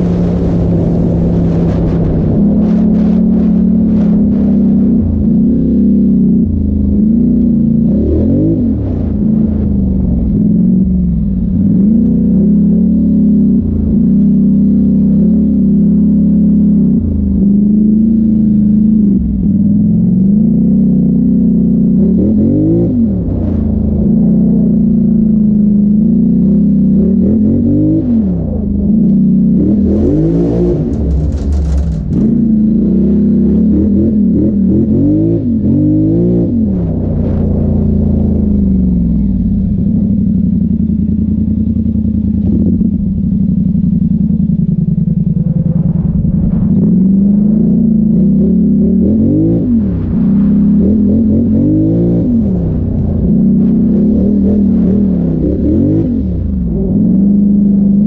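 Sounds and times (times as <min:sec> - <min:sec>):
atv engine revving under load: 0:26.1 - 0:58.0.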